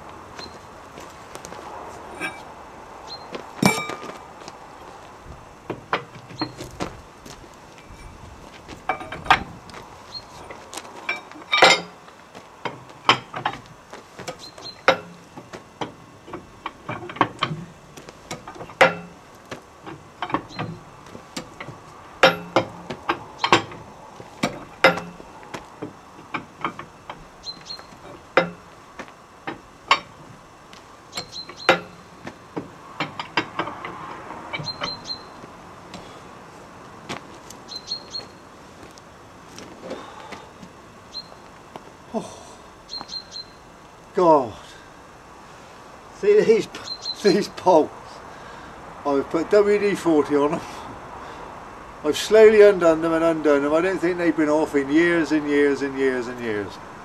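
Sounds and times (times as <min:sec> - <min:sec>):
hand tools clinking on metal: 0:03.6 - 0:04.2, 0:10.4 - 0:12.0, 0:21.4 - 0:23.8, 0:24.4 - 0:25.2.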